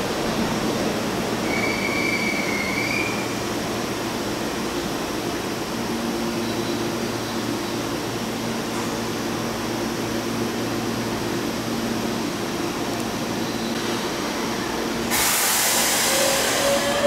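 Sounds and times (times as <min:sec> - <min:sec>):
electric train hum: 0:00.0 - 0:17.0
train inverter whine: 0:00.0 - 0:17.0
loud hiss of air: 0:15.0 - 0:17.0.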